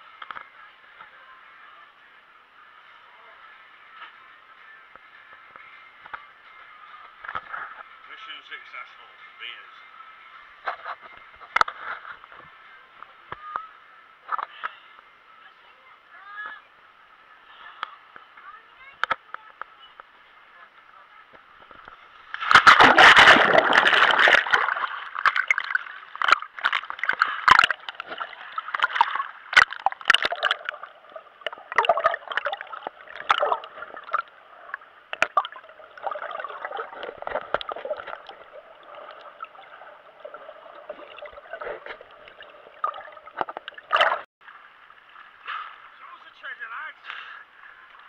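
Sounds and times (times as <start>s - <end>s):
muffled sloshes and bubbling: 21.4s - 46.1s
seawater splashing and gurgling: 22.2s - 46.4s
loud splash into water: 22.4s - 30.8s.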